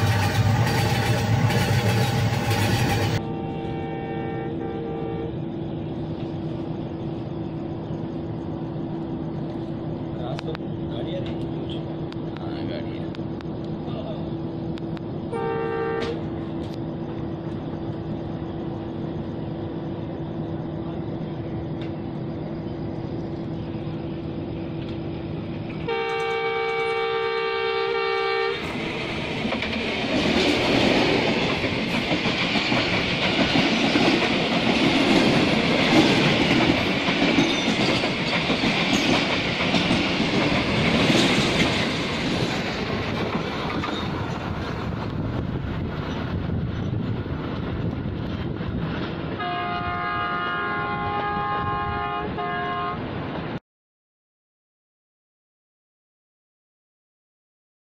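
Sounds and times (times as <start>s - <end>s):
passing train rumbling: 0.0s - 53.6s
train running: 0.0s - 53.6s
train horn blasts: 3.2s - 5.5s, 15.3s - 16.3s, 25.8s - 28.6s, 49.4s - 53.1s.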